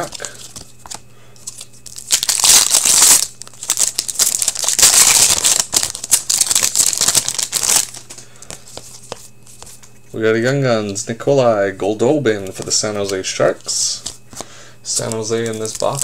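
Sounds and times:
wrapper tearing and crinkling: 1.5 - 8.0, 15.0 - 16.0.

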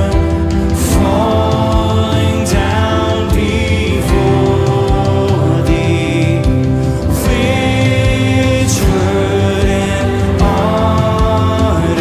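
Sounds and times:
hymn singing: 0.0 - 12.0
low drum beat: 0.0 - 12.0
sustained chords: 0.0 - 12.0.

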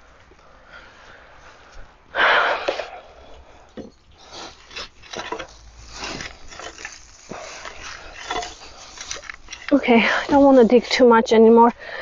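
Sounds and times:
hand tool scraping compost: 3.9 - 11.6.

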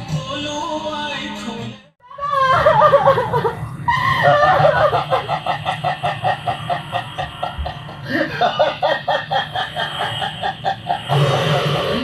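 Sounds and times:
person laughing rapidly: 2.4 - 11.0.

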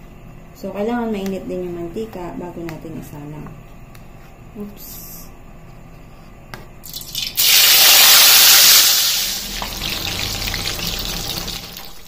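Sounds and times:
food sizzling in hot oil: 6.9 - 12.0.

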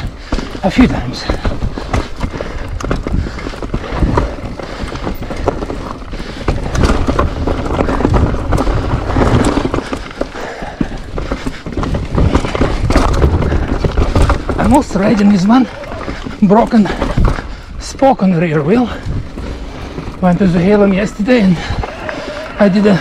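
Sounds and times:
bike rattling over rocks: 0.0 - 23.0
wind rumble on microphone: 18.9 - 20.2.

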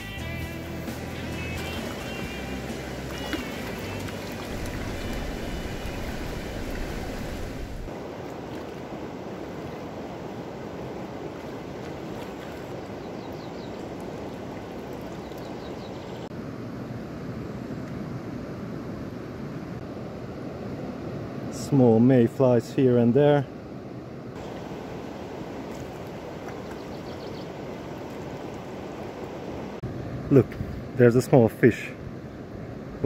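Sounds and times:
river water rushing over stones: 1.2 - 16.3, 24.4 - 29.8.

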